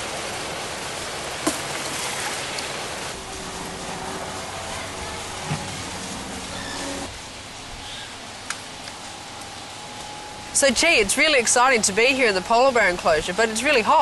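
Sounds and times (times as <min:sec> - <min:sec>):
running water: 0:00.0 - 0:14.0.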